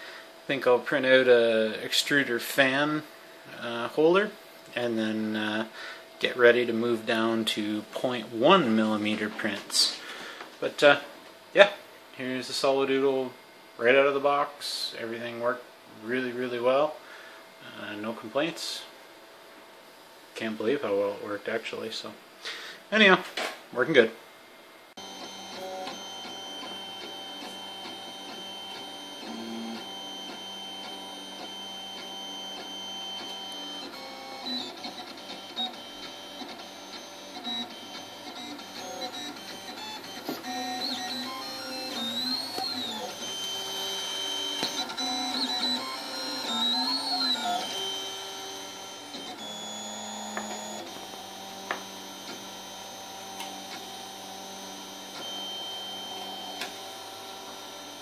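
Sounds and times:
stepper motors whining: 25.0s - 58.0s.

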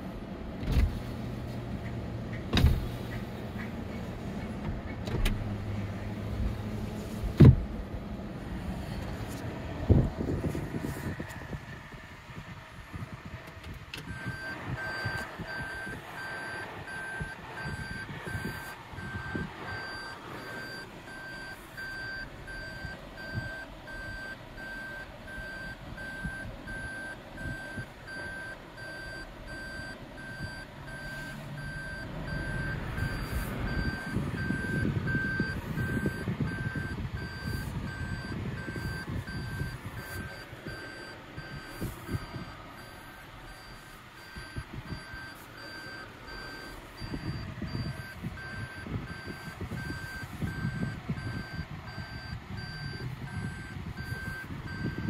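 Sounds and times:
low cabin rumble: 0.0s - 55.0s
car reverse warning beeping: 13.6s - 55.0s.

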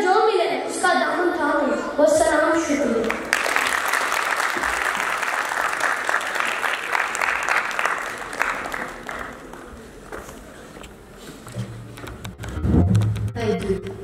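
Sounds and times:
boy speaking: 0.0s - 3.1s, 13.4s - 14.0s
audience clapping: 3.0s - 10.5s.

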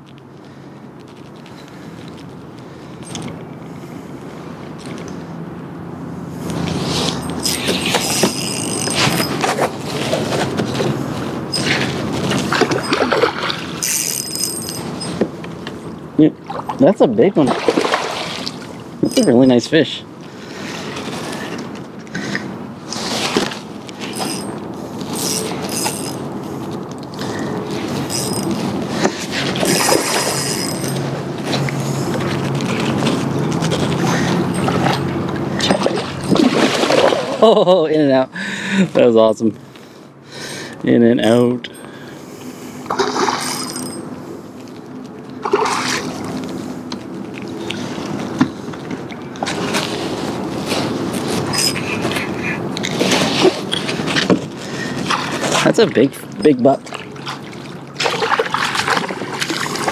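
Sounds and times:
fishing reel whirring: 7.0s - 9.4s, 13.8s - 15.2s, 24.0s - 26.3s, 28.0s - 28.6s, 29.6s - 31.0s
fish thrashing water splashing: 17.4s - 18.8s, 35.8s - 37.4s, 45.4s - 46.2s, 56.9s - 59.9s.

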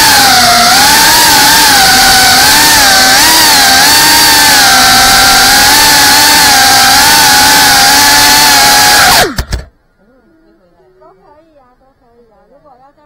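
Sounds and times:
drone motors whining: 0.0s - 9.7s.

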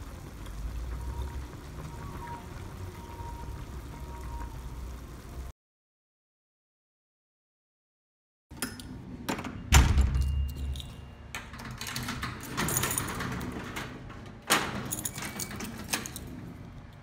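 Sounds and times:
door shutting thud: 9.3s - 10.4s
keys jangling: 10.2s - 13.7s, 14.7s - 16.6s.

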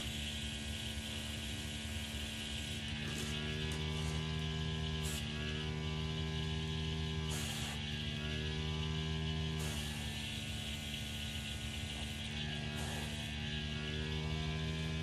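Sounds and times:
airbrush hissing: 0.0s - 5.4s, 6.9s - 8.2s, 9.4s - 13.4s
compressor humming: 0.0s - 15.0s.

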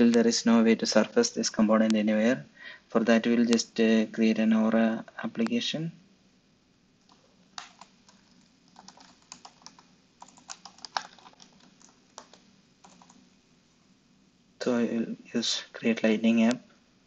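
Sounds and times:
computer keyboard key clicks: 7.0s - 13.2s.

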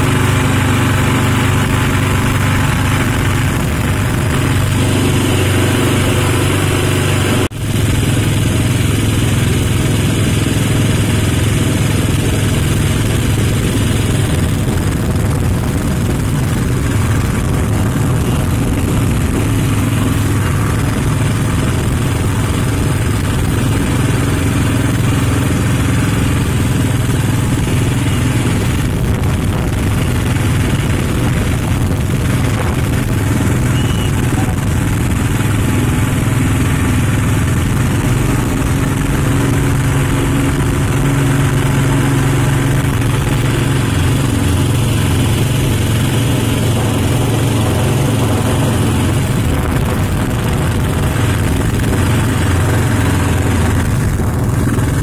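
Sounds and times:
small boat engine droning: 0.0s - 55.0s.

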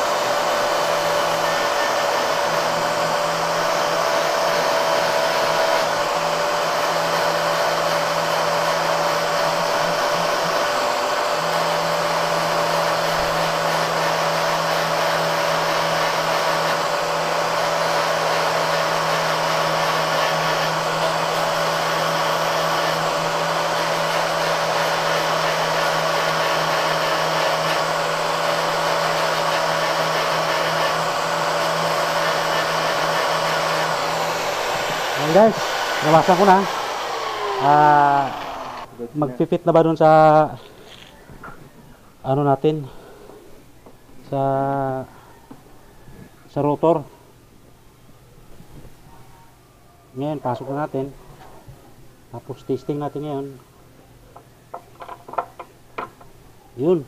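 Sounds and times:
angle grinder grinding metal: 0.0s - 39.4s.

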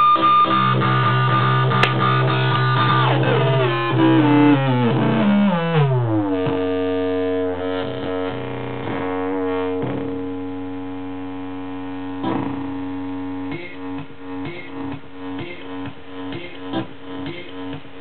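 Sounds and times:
droning synth tone: 0.0s - 13.5s
glitchy synth pitch glides: 0.4s - 10.7s.

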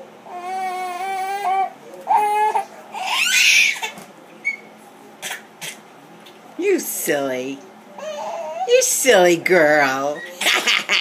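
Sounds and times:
infant crying: 0.3s - 4.0s
infant high squeal: 3.0s - 3.9s.

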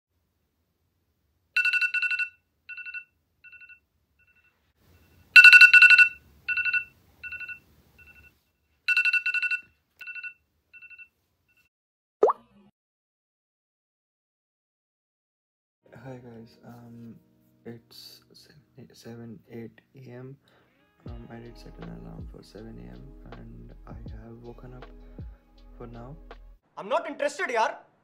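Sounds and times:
phone alarm rapid high beeps: 5.4s - 8.3s.

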